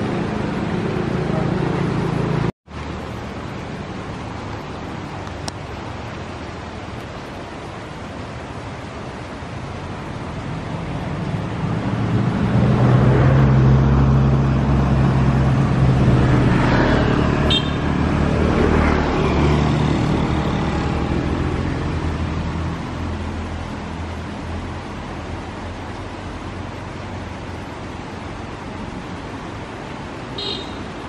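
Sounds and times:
vehicle engine passing by: 0:00.0 - 0:02.5, 0:10.4 - 0:25.7.

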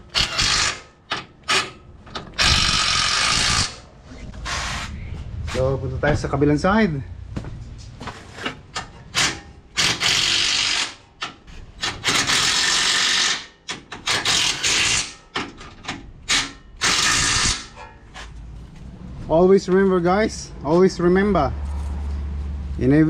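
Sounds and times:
impact wrench bursts: 0:00.0 - 0:04.9, 0:09.1 - 0:15.6, 0:16.2 - 0:17.8.

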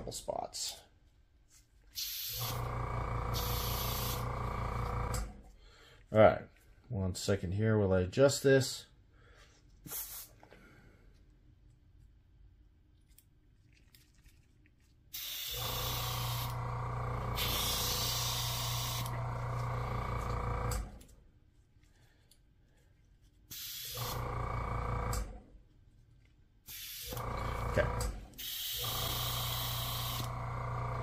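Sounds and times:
airbrush hissing: 0:02.0 - 0:02.7, 0:03.3 - 0:04.3, 0:09.9 - 0:10.4, 0:15.2 - 0:16.5, 0:17.4 - 0:19.1, 0:23.5 - 0:24.2, 0:28.4 - 0:30.3.

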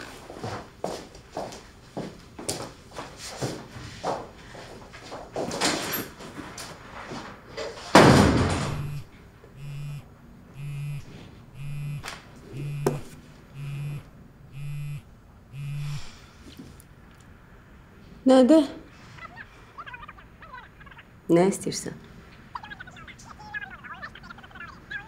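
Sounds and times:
door slamming: 0:08.0 - 0:09.0
phone vibrating buzzes: 0:08.5 - 0:16.2.

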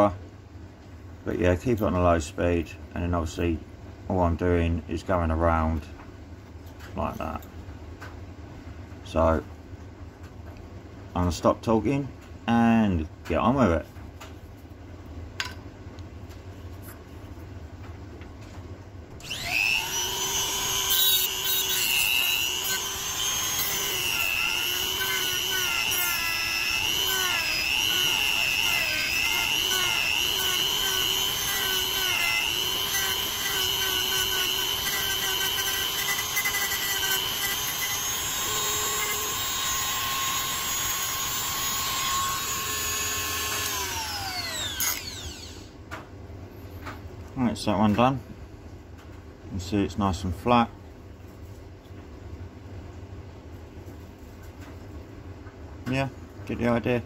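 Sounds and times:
rotary tool grinding plastic: 0:19.2 - 0:45.6.

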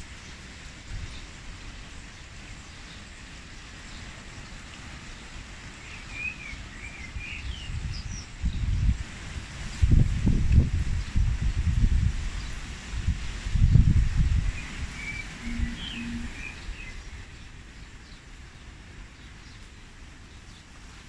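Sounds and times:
wind rumbling on microphone: 0:00.0 - 0:05.8, 0:06.5 - 0:19.3
wind rustling trees: 0:00.0 - 0:21.0
bird chirping: 0:14.6 - 0:17.4.

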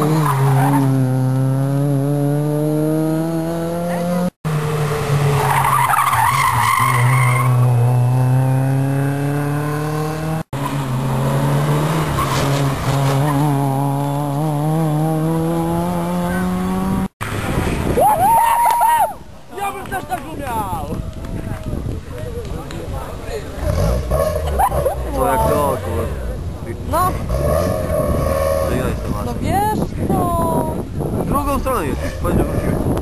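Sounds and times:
rally car engines accelerating: 0:00.0 - 0:17.5.

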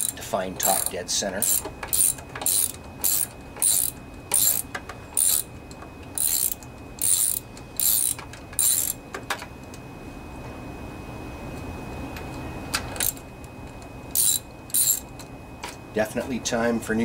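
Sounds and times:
ratchet wrench clicking: 0:00.0 - 0:05.5, 0:06.2 - 0:09.0, 0:14.1 - 0:15.1.

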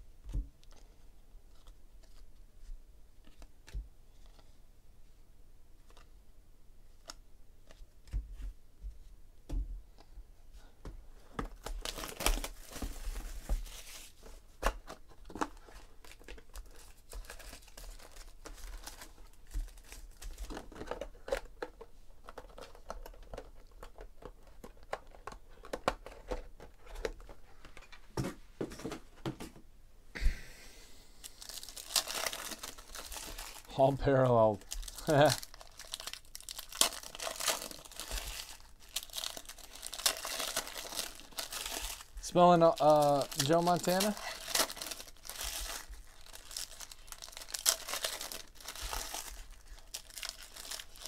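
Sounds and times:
cards rustling and clicking: 0:11.3 - 0:27.9, 0:31.2 - 0:51.0
foil pack tearing: 0:31.4 - 0:33.7, 0:34.6 - 0:51.0.

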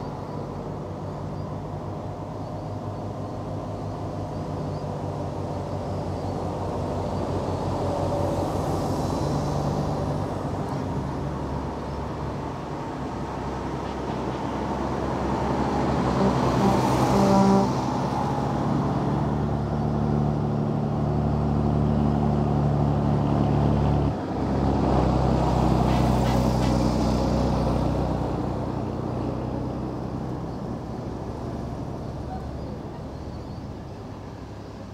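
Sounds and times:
diesel trucks driving past: 0:00.0 - 0:34.9
truck horn toots: 0:16.1 - 0:17.9.

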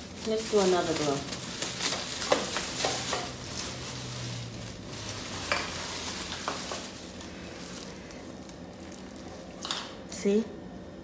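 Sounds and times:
plastic bag rustling: 0:00.0 - 0:10.0.

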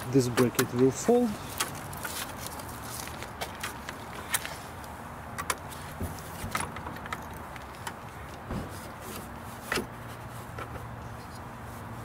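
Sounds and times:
dull thump: 0:08.4 - 0:08.9.

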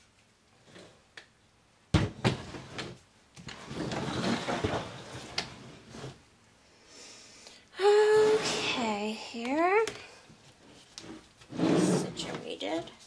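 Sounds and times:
wood scraping on table: 0:02.2 - 0:06.2, 0:10.7 - 0:12.4.

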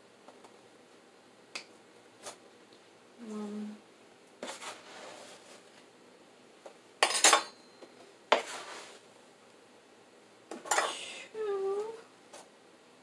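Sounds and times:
scooping sugar rustle: 0:04.4 - 0:05.8, 0:08.4 - 0:09.0.

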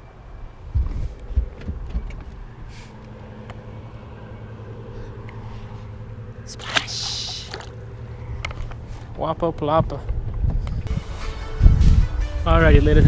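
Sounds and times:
low motor hum: 0:00.0 - 0:12.2
fish slapping into water: 0:06.5 - 0:07.8.

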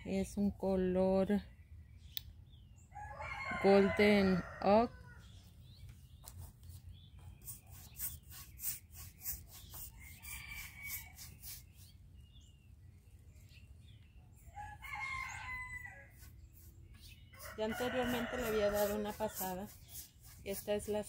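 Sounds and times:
rooster crowing: 0:02.9 - 0:05.2, 0:14.5 - 0:16.2, 0:17.4 - 0:19.1
paint brush strokes on wood: 0:05.9 - 0:12.0, 0:15.4 - 0:21.0.

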